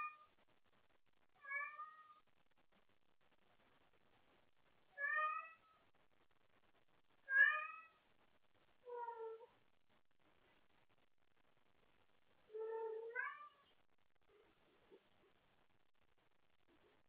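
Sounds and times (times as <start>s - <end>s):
cat meowing: 5.0s - 5.6s, 7.3s - 8.0s, 12.6s - 13.7s.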